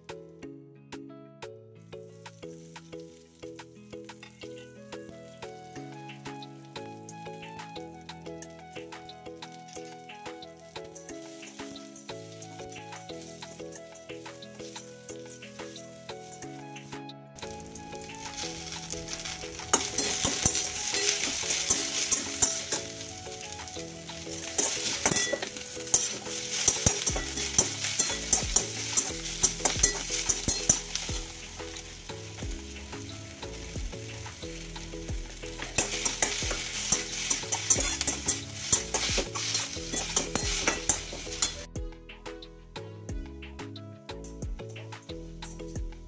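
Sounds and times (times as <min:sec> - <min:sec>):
vegetables sizzling in a pan: 0:02.2 - 0:04.6, 0:09.4 - 0:41.7
spatula scraping a pan: 0:17.5 - 0:32.0, 0:35.5 - 0:41.6.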